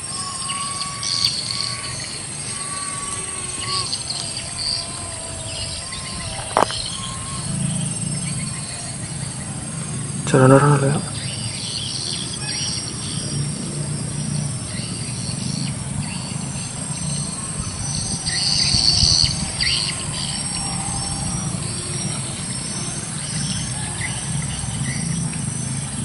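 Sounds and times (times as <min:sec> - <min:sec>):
high chirps: 0:00.0 - 0:13.4.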